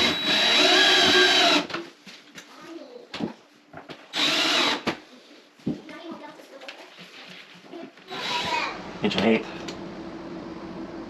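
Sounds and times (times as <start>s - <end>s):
cordless drill driving screws: 0.0s - 1.7s, 4.2s - 4.9s, 8.1s - 8.7s.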